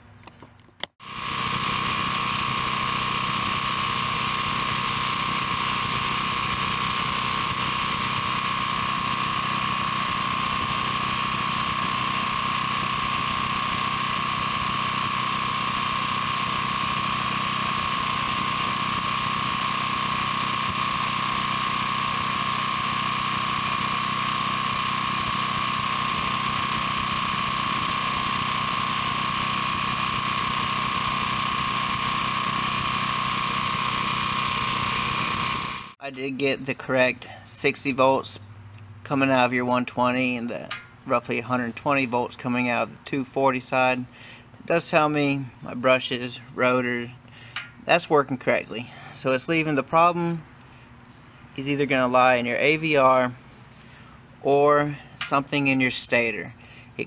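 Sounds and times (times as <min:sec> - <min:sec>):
high whine: 0:01.0 - 0:38.5
generator engine running: 0:01.0 - 0:57.0.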